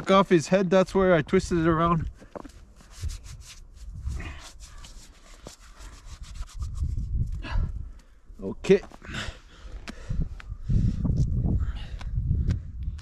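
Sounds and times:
hands rubbing snow: 2.7s - 7.0s.

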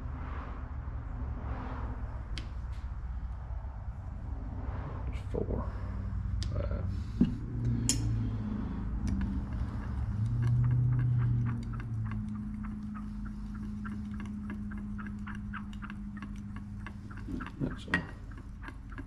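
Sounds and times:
low steady hum: 0.0s - 19.0s
rod ticking against glass cup: 9.0s - 19.0s.

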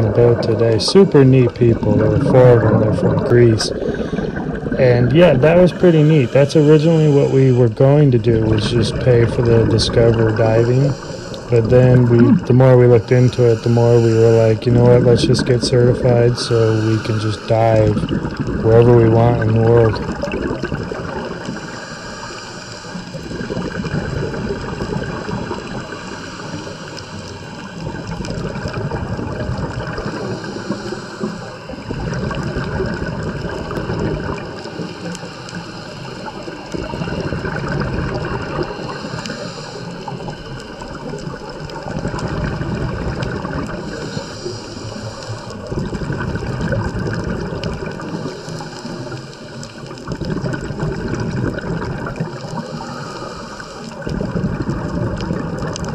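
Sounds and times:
underwater breath bubbling: 0.0s - 55.9s.

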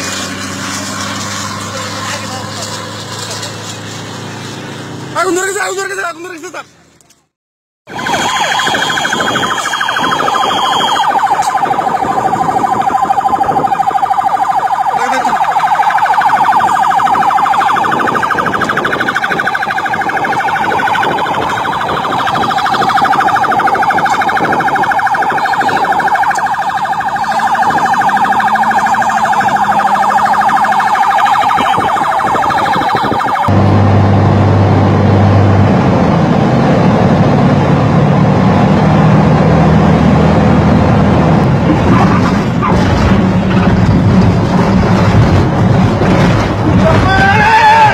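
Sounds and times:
pulsing siren-like alarm tone: 7.9s - 33.6s.

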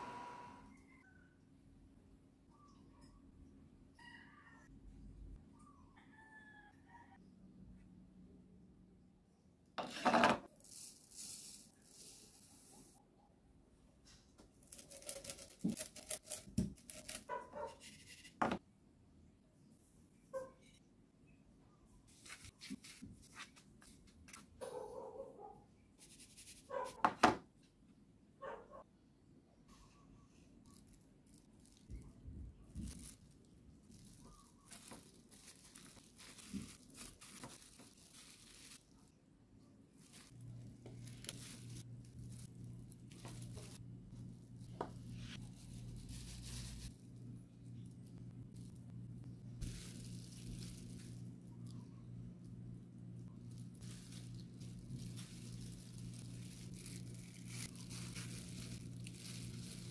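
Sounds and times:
plastic glove crinkling: 14.6s - 18.4s, 22.1s - 24.5s, 30.6s - 39.2s, 39.9s - 59.9s
faint low hum: 29.0s - 59.9s
seeds crunching in wooden bowl: 53.6s - 59.9s.

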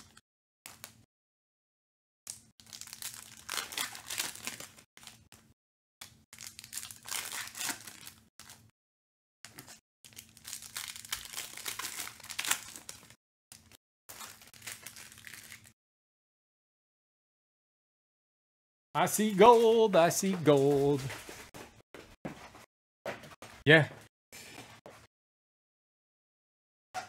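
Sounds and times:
foil wrappers tearing and crinkling: 2.6s - 5.2s, 6.4s - 8.6s, 10.1s - 15.7s.

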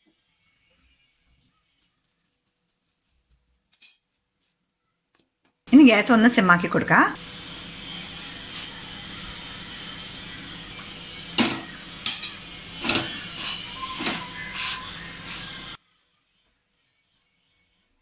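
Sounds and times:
flatbread sizzling in ghee: 0.0s - 4.5s, 7.1s - 15.8s.

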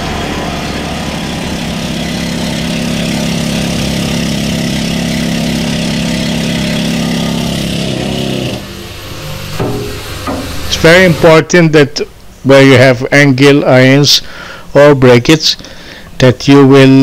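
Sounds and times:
power tool running on steel: 0.0s - 11.5s.

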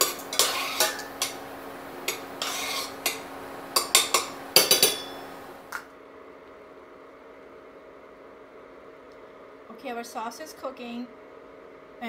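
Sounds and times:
spoon clinking on saucepan: 0.0s - 5.4s
spoon scraping in saucepan: 0.0s - 5.4s
faint steady hum: 0.0s - 12.0s
ringing taps on saucepan: 3.8s - 5.3s.

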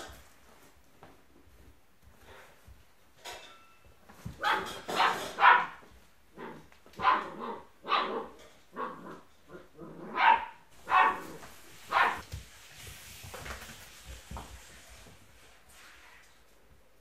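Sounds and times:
puppies barking: 4.4s - 5.8s, 10.1s - 11.3s, 11.9s - 12.2s.

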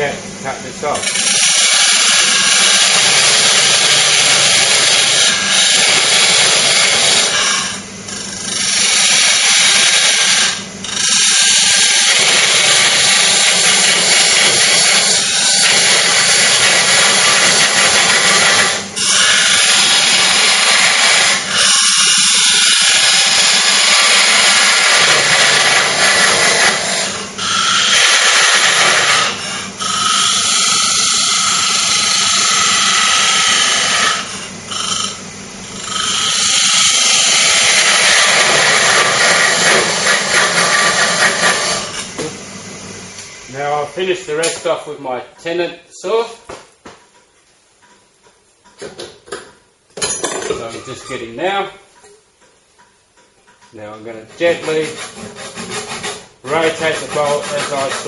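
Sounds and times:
parting tool cutting wood on lathe: 0.8s - 35.2s, 35.8s - 42.2s, 54.2s - 58.0s.

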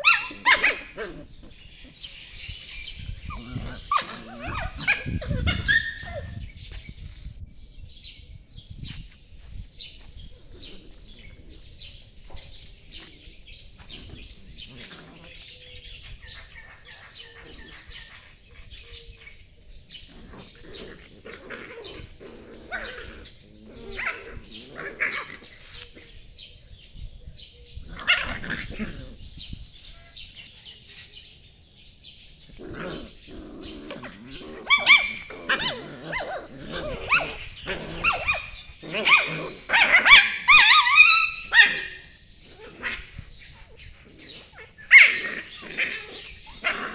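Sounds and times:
puppies yipping and yelping: 0.0s - 6.9s, 33.8s - 46.9s.

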